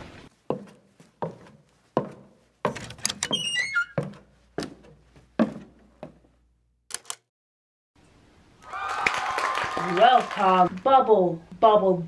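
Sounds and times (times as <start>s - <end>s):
short falling squeak: 3.2s - 4.1s
quick clicks: 6.9s - 7.3s.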